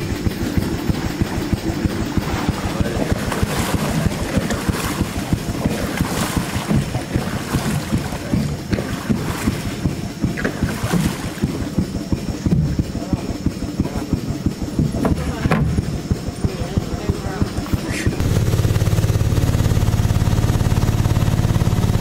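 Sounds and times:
water rushing along boat hull: 0.0 - 22.0.

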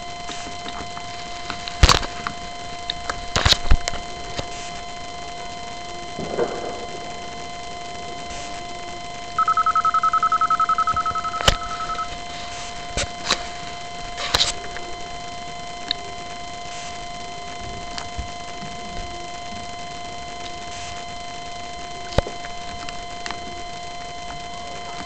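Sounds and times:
faint electronic hum: 0.0 - 25.0
sharp clicks: 6.2 - 12.2
fast-pulsed electronic beep: 9.4 - 12.2.

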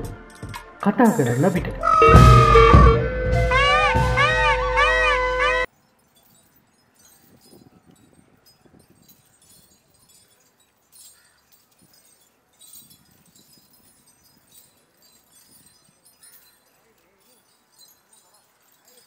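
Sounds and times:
metal chains jangling: 5.7 - 19.0.

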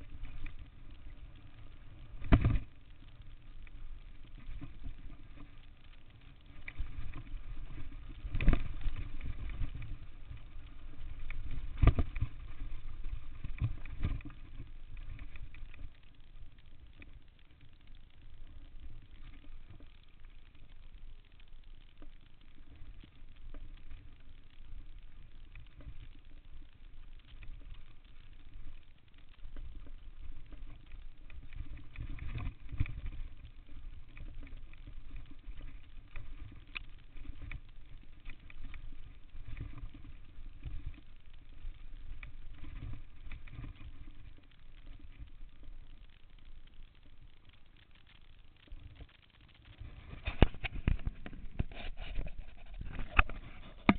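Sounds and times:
wind rumble on microphone: 0.0 - 18.2, 49.8 - 53.9.

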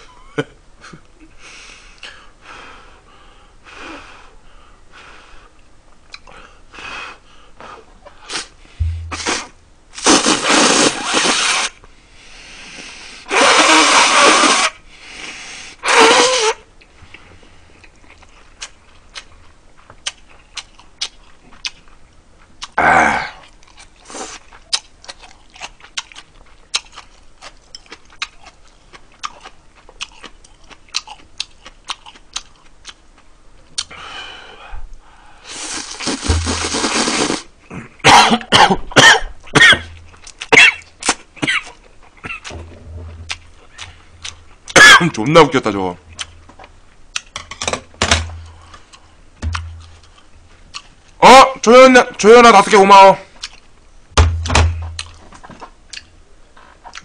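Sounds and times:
loud slurping of noodles: 9.2 - 11.8, 13.3 - 16.6, 35.4 - 37.5
chewing: 16.8 - 22.8, 23.4 - 33.9, 43.2 - 44.8, 46.1 - 47.3, 48.6 - 51.2, 53.4 - 53.7, 55.0 - 57.0.

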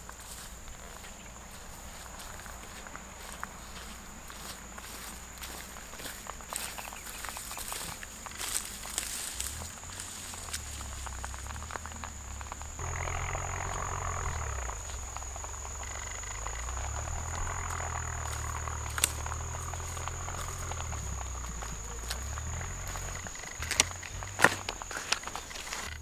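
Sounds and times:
insects chirring: 0.0 - 26.0
low rumble: 8.9 - 25.1.

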